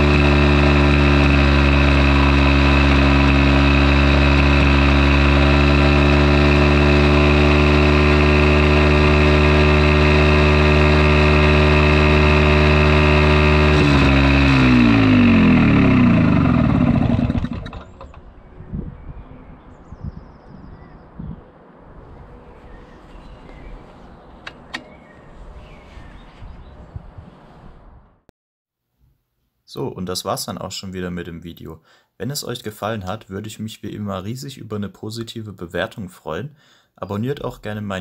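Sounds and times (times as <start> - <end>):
two-stroke generator engine: 0.0 - 18.3.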